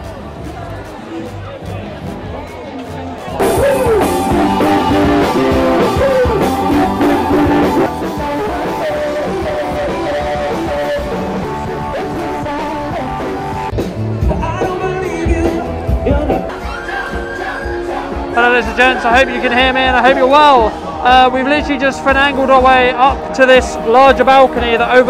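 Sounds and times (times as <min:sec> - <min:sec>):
drum kit: 0:03.3 - 0:24.9
electric guitar: 0:03.4 - 0:16.7
person singing: 0:03.4 - 0:19.6.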